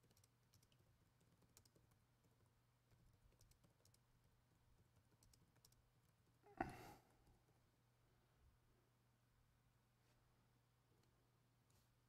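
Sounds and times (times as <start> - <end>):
laptop keyboard typing: 0.0 - 6.4.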